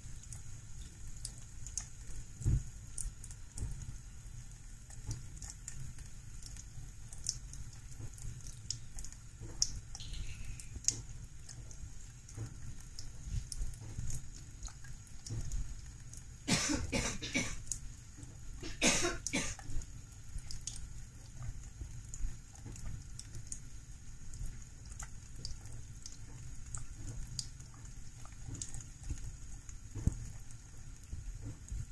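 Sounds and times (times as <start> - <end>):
cat lapping water: 0.1 - 31.9
tap water running into sink: 4.8 - 23.5
cough-like bursts: 16.5 - 17.6, 18.6 - 19.6.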